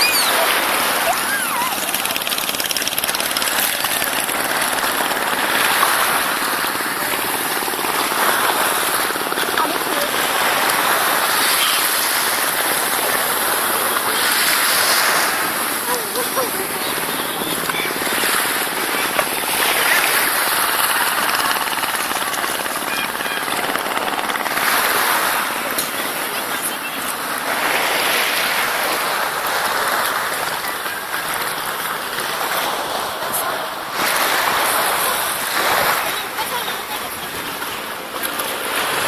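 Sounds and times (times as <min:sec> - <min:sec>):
sea water sloshing: 0:00.0 - 0:21.1.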